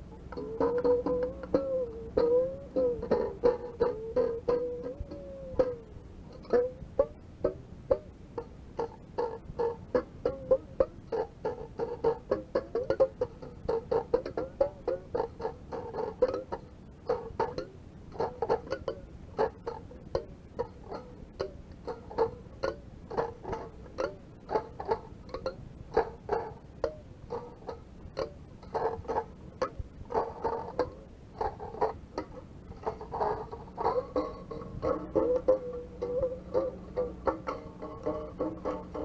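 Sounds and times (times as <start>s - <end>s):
choppy plucked notes and clicks: 0.0s - 39.0s.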